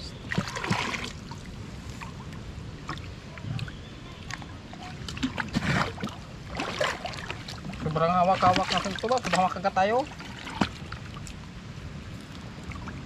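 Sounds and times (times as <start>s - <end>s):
faint water sloshing: 0.0s - 13.0s
bucket dipped into water: 0.3s - 1.2s, 5.1s - 9.5s
water splashing from bucket: 0.3s - 1.5s, 5.0s - 11.4s.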